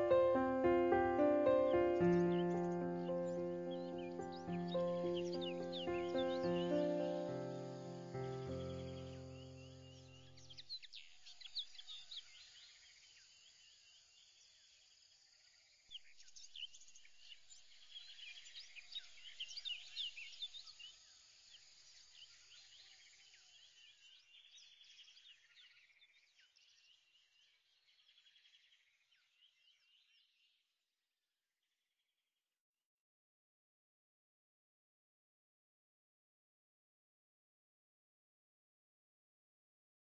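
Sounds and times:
small birds chirping: 0:00.0 - 0:30.6.

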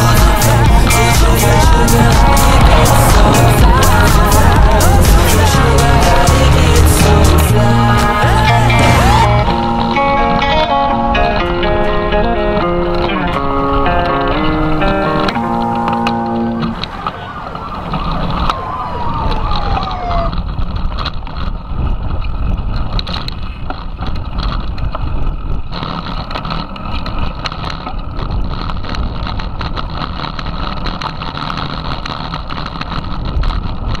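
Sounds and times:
guitar music: 0:00.0 - 0:17.1
high tone sliding downward: 0:00.0 - 0:20.5
low rumble: 0:00.0 - 0:25.7
bike rattling and clicking: 0:00.0 - 0:34.0
wind on microphone: 0:00.0 - 0:34.0.

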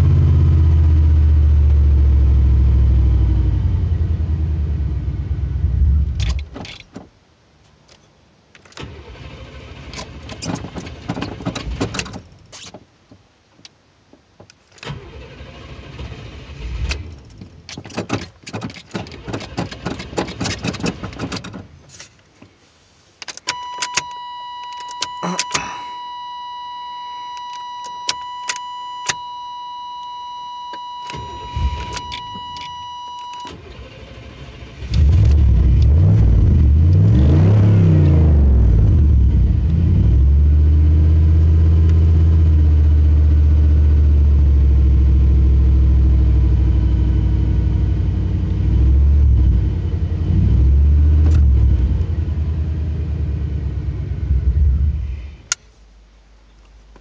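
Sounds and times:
car engine starting and idling: 0:00.0 - 0:07.1, 0:08.6 - 0:12.7, 0:14.3 - 0:22.4, 0:30.7 - 0:56.2
keys clicking: 0:23.2 - 0:25.8.

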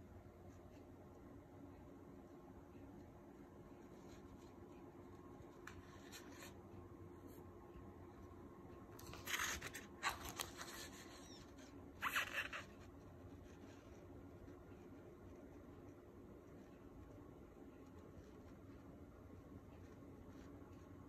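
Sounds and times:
pages turning: 0:09.0 - 0:11.0.

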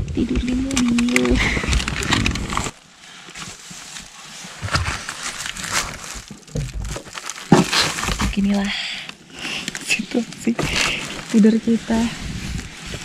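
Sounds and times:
nylon jackets rustling: 0:09.7 - 0:13.0.

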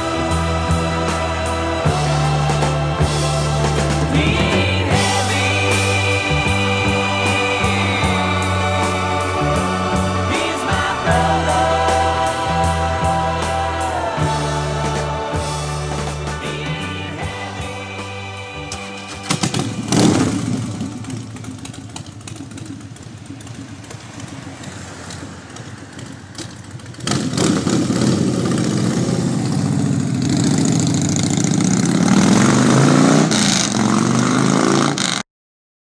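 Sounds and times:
motorcycle engine revving: 0:00.0 - 0:35.2
outdoor background noise: 0:18.6 - 0:35.2.

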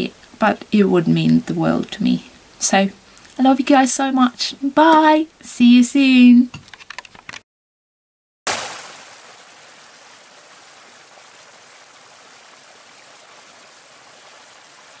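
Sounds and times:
stream splashing over rocks: 0:08.5 - 0:15.0.

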